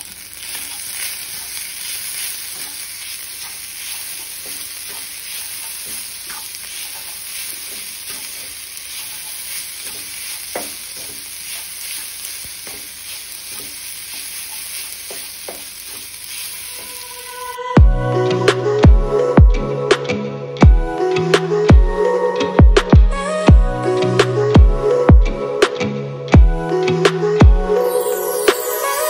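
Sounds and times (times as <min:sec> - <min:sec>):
rice sizzling in a pan: 0:00.0 - 0:17.6
spatula scraping a pan: 0:00.3 - 0:17.0.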